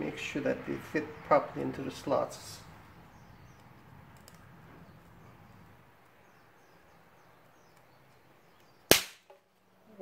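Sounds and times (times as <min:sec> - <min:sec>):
distant bird chirps: 0:00.8 - 0:08.9.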